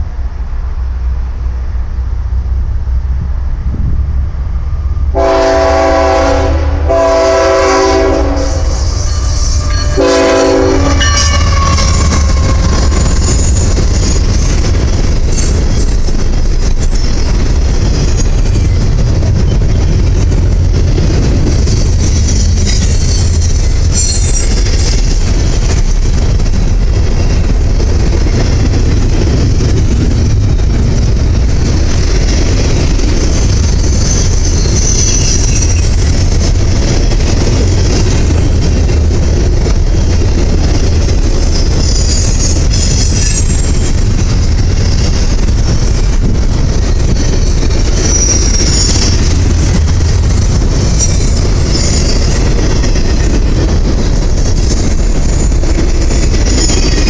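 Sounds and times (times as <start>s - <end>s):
freight train rumbling past: 0.0s - 57.0s
locomotive air horn: 5.1s - 12.7s
high wheel squeal: 8.4s - 14.6s, 15.2s - 19.7s, 21.9s - 25.1s, 33.3s - 36.0s, 41.3s - 45.4s, 46.9s - 52.6s, 56.4s - 57.0s.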